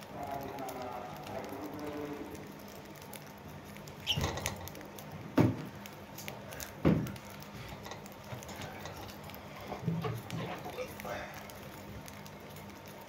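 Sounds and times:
birds pecking seed: 0:00.0 - 0:13.0.

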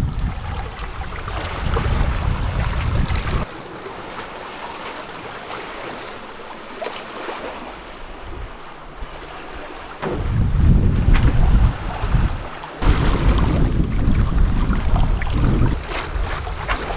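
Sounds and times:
wind buffeting microphone: 0:00.0 - 0:03.5, 0:08.0 - 0:16.9
sea water rushing along hull: 0:00.0 - 0:16.9.

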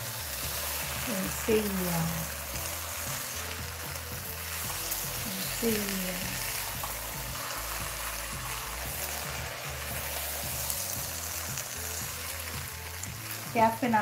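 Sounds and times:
rice sizzling in a pot: 0:00.0 - 0:14.0.

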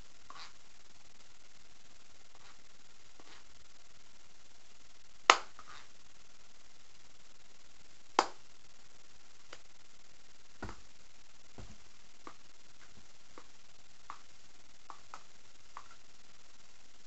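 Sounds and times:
background hiss: 0:00.0 - 0:17.0
faint taps: 0:10.6 - 0:10.8.

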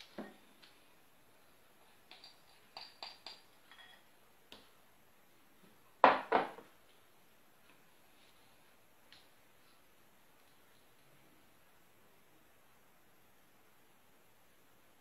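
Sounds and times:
spatula tapping glass bowl: 0:02.0 - 0:04.0
bowl knocking on table: 0:06.0 - 0:06.6.

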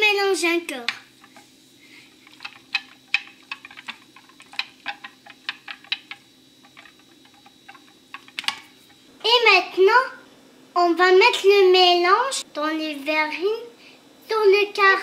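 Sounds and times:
whisk ticking against bowl: 0:02.2 - 0:09.0.

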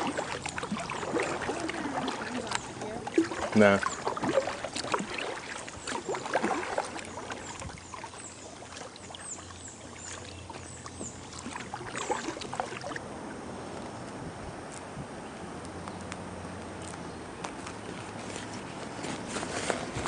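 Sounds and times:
water dripping: 0:00.0 - 0:13.0
paddle splashing water: 0:00.0 - 0:14.8, 0:16.0 - 0:20.0.

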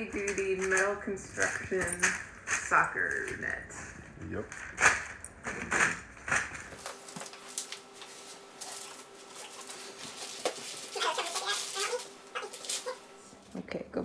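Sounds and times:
wrapping paper crinkling: 0:04.5 - 0:13.2.

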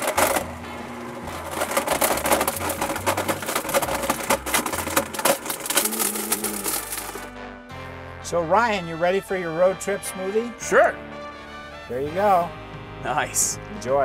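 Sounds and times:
hard pieces clattering in jar: 0:00.0 - 0:00.6, 0:01.2 - 0:07.3
blender running: 0:00.0 - 0:04.5, 0:05.6 - 0:07.3.

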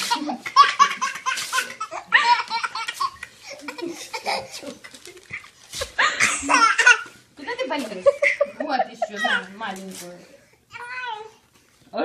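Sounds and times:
toddler laughing: 0:00.0 - 0:07.2, 0:09.0 - 0:09.6.

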